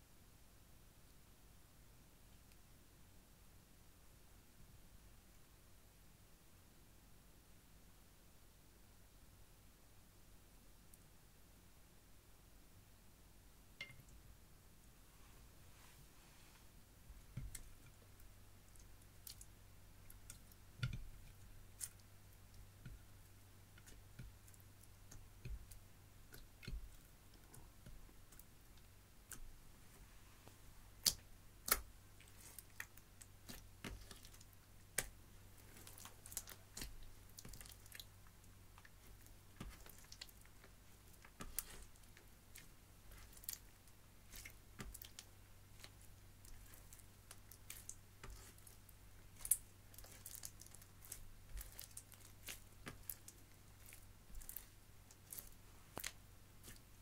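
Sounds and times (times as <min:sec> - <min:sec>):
slime squishing by hand: 0:15.3 - 0:57.0.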